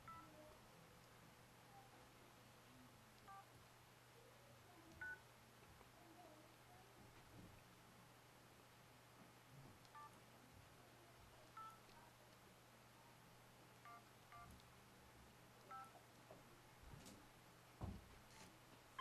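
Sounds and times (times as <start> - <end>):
phone keypad beeps: 0.0 - 0.3, 5.0 - 5.2, 9.9 - 10.1, 11.6 - 11.8, 13.9 - 14.5, 15.7 - 16.0.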